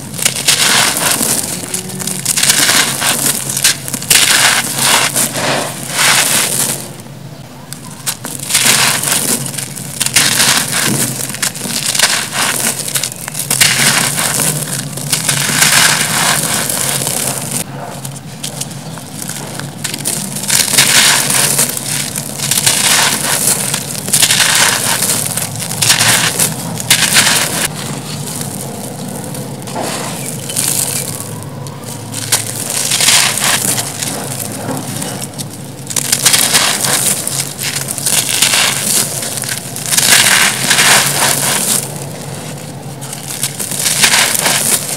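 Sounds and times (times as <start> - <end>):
concrete crunching in hands: 0.0 - 7.1, 7.8 - 44.9.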